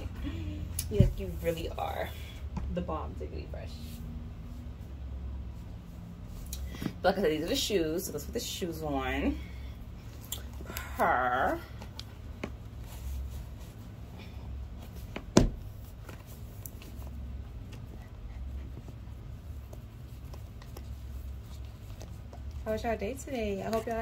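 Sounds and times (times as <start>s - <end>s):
low steady hum: 0.0s - 24.0s
laces rustling and tapping: 14.6s - 24.0s.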